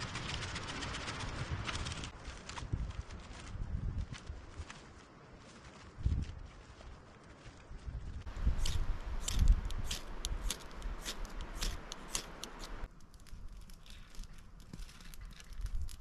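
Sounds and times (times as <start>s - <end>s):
campfire crackling: 8.2s - 16.0s
ferro rod scraping: 8.4s - 16.0s.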